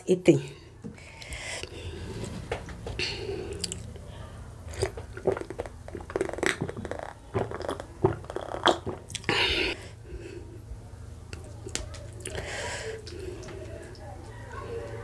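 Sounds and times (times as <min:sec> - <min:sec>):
gulps and swallows of drink: 0:03.5 - 0:04.0, 0:04.7 - 0:09.8.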